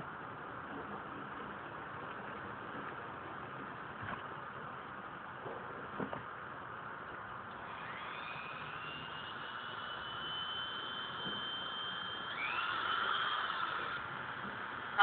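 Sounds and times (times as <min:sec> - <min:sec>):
rotary tool high-pitched whine: 0:07.5 - 0:15.0.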